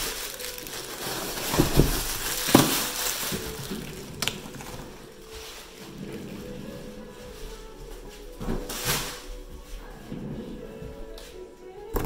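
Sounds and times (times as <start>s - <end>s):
packaging crinkling and rustling: 0.0s - 7.8s.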